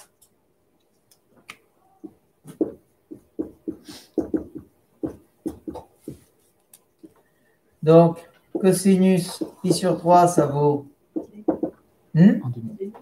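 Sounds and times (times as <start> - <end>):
pen knocking on whiteboard: 2.0 - 6.3, 8.5 - 10.0, 11.2 - 11.8.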